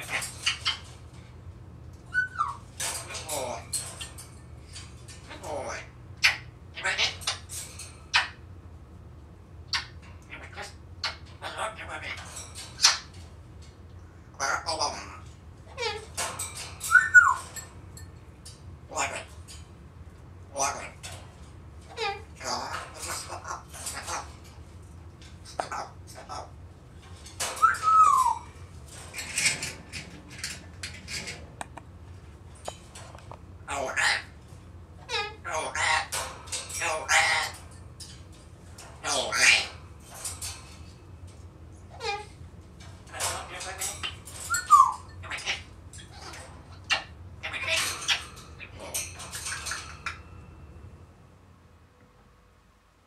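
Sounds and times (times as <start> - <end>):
parrot harsh calls: 0.0 - 1.0, 2.1 - 4.1, 5.3 - 8.4, 9.7 - 13.2, 14.3 - 17.6, 18.9 - 19.4, 20.5 - 21.2, 21.8 - 24.4, 25.5 - 26.6, 27.4 - 28.6, 33.6 - 34.4, 35.0 - 37.7, 39.0 - 40.2, 41.9 - 42.4, 43.1 - 50.5
parrot whistle: 16.9 - 17.4, 27.6 - 28.5
sharp clicks: 31.6 - 31.9.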